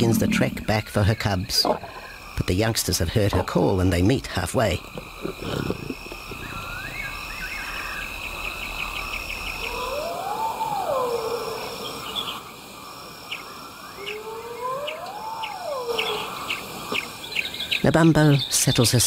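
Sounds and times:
crickets and insects chirping: 0:00.0 - 0:19.0
long whistled call: 0:09.6 - 0:12.4, 0:13.8 - 0:17.0.

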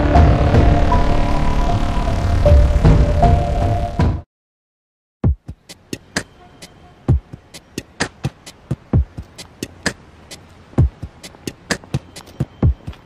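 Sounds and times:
drum machine beat: 0:05.2 - 0:13.0.

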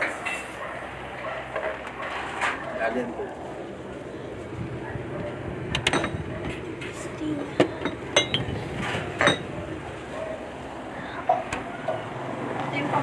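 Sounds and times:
bottles clinking together: 0:07.6 - 0:08.6, 0:09.2 - 0:09.6.

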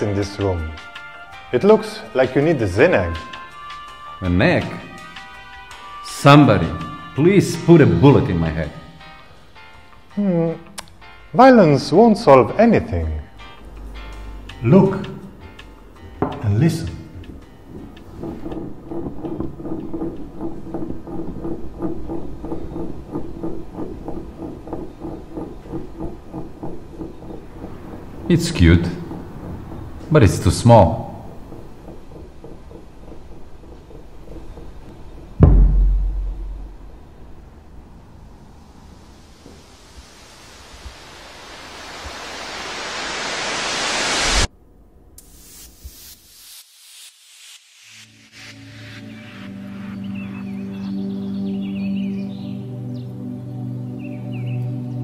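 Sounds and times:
background music: 0:00.0 - 0:40.6, 0:48.0 - 0:55.0
wooden egg rocking on table: 0:16.0 - 0:37.0
noise riser sound effect: 0:38.6 - 0:44.5, 0:45.2 - 0:49.8.

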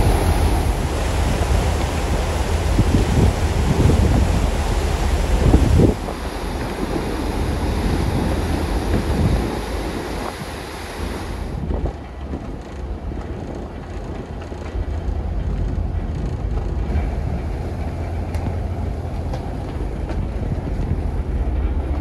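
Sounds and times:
hiss of churning wake: 0:00.0 - 0:12.3
ferry engines rumbling: 0:00.0 - 0:22.0
wind on microphone: 0:00.0 - 0:22.0.

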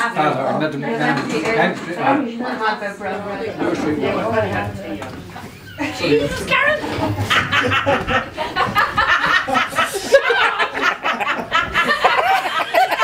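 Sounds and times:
overlapping talk: 0:00.0 - 0:13.0
people laughing: 0:05.3 - 0:13.0.

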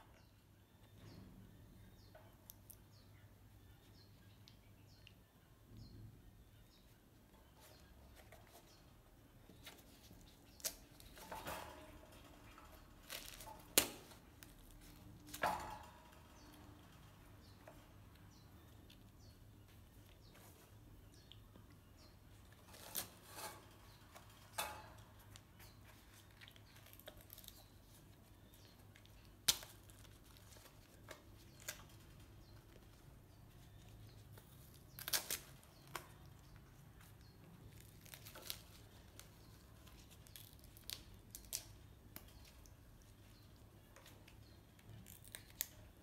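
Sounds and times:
tearing and crunching seed pod: 0:09.6 - 0:15.8, 0:22.5 - 0:24.2, 0:25.1 - 0:32.3, 0:33.6 - 0:46.0.

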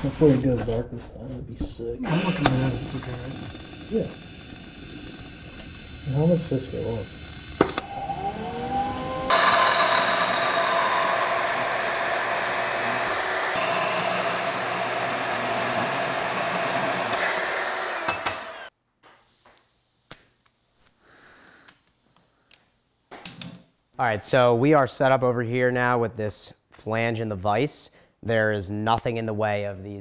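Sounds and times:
band saw cutting metal: 0:02.0 - 0:18.7.

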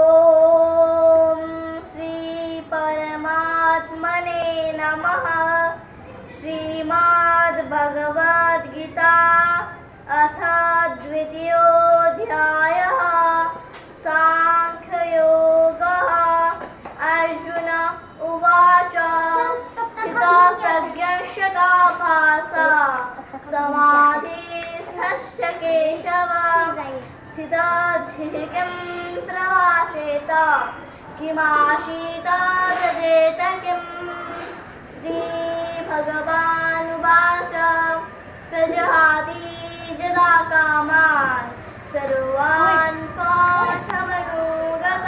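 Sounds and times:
girl chanting a verse: 0:18.8 - 0:34.3.

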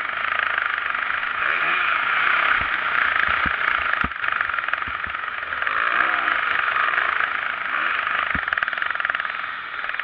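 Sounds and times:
motocross bike engine revving: 0:00.0 - 0:10.0
sharp knocks of bike jolting: 0:02.5 - 0:05.3, 0:08.3 - 0:08.7.

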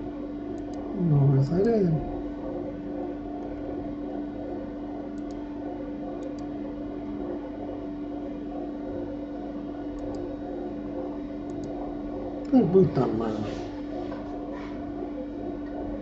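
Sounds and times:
bread machine humming: 0:00.0 - 0:16.0
computer mouse clicks: 0:00.5 - 0:00.9, 0:05.1 - 0:05.4, 0:06.1 - 0:06.5, 0:09.9 - 0:10.4, 0:11.4 - 0:11.8.

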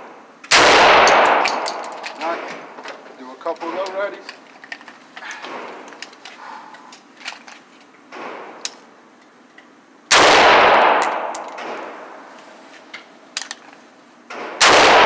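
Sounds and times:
rifle shot with echo: 0:00.5 - 0:02.0, 0:10.1 - 0:12.2, 0:14.4 - 0:15.0.

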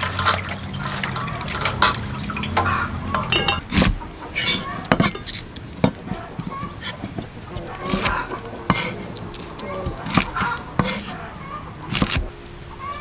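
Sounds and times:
knife slicing on wooden board: 0:03.7 - 0:11.2.

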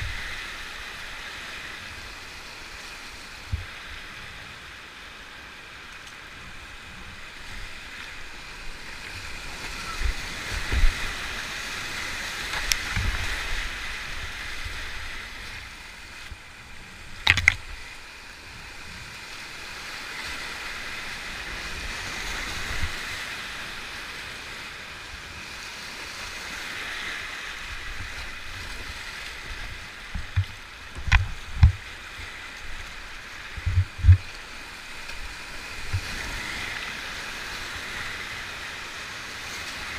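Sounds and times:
whitewater rapids roaring: 0:00.0 - 0:39.9
kayak knocks and thumps: 0:12.5 - 0:13.3, 0:17.2 - 0:17.8, 0:30.1 - 0:31.8, 0:33.6 - 0:34.4.

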